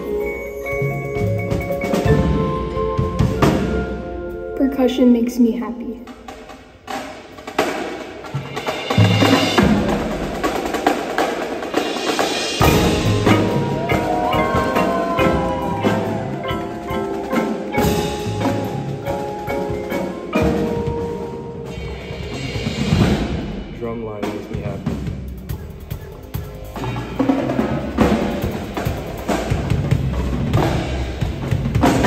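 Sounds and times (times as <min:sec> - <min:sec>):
marimbas and mallet keyboards: 0:00.0 - 0:06.1, 0:12.6 - 0:22.7
marching drums and cymbals: 0:00.0 - 0:32.0.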